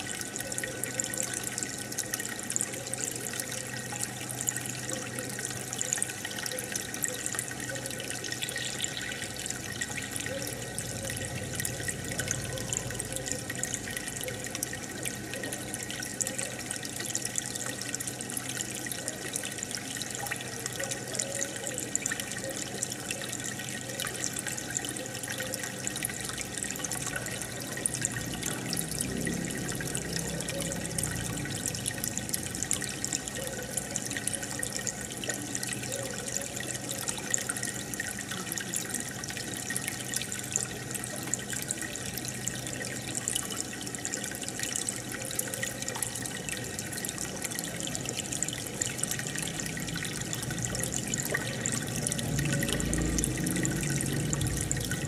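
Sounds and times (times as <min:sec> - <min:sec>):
aquarium water bubbling: 0:00.0 - 0:55.0.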